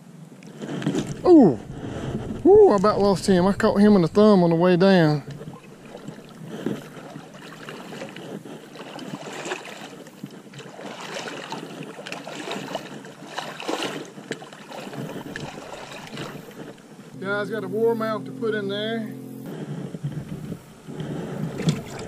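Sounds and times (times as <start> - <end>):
splashing and rustling in water: 5.0 - 17.1, 20.2 - 22.0.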